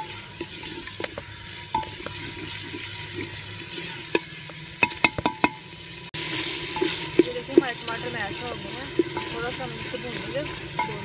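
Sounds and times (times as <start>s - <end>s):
masala sizzling in hot oil: 0.0s - 11.0s
spoon knocking against pot: 4.8s - 5.6s.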